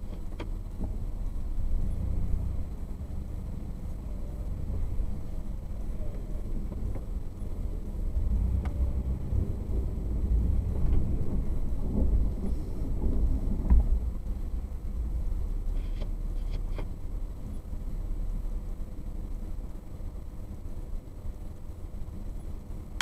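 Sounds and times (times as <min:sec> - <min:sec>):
engine and tyres rumbling: 0:00.0 - 0:23.0
vehicle knocks and rattles: 0:10.7 - 0:14.7.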